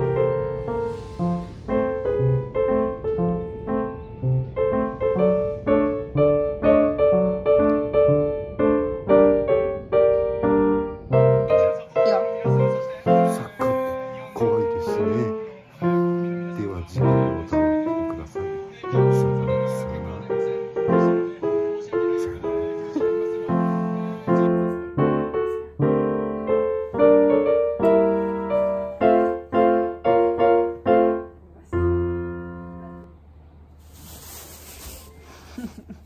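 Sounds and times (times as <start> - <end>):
faint hiss: 0.0 - 8.2, 33.6 - 36.0
piano music: 0.0 - 33.3.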